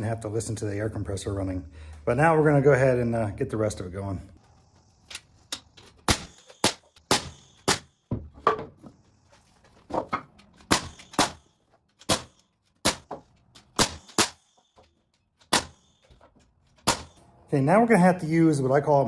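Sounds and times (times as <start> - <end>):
nail gun firing: 6.0 - 8.0, 10.7 - 14.6, 15.4 - 15.9, 16.8 - 17.2.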